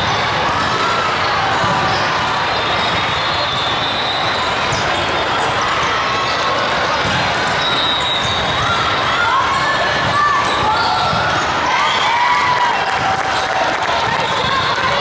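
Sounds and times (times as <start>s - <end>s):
volleyballs struck and bouncing: 0.0s - 3.3s, 6.3s - 9.0s, 9.8s - 11.7s.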